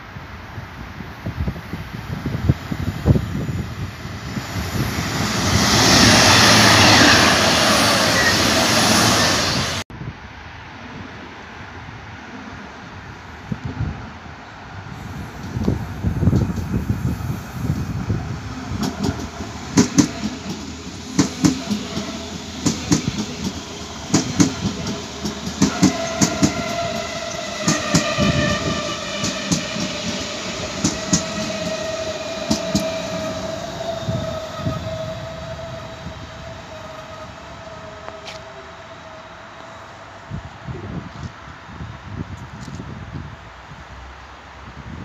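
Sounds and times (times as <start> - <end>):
train whine: 0.0 - 44.6
train wheels clacking over rail joints: 18.8 - 33.0.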